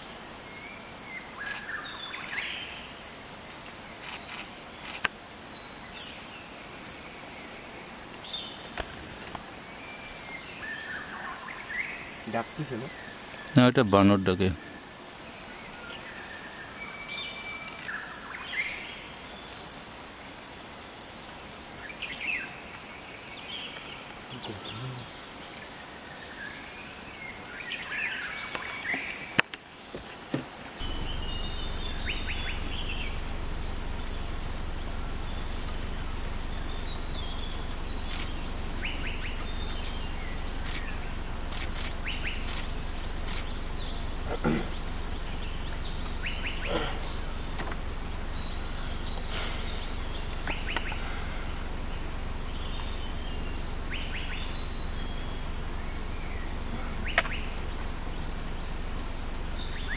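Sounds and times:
insect drone: 0.0 - 59.9
steady low rumble: 30.8 - 59.9
sharp click: 57.1 - 57.4.

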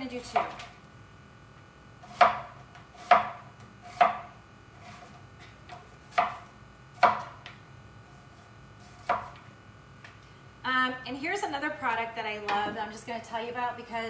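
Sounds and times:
knife slicing onion: 2.0 - 7.5, 8.1 - 9.4.

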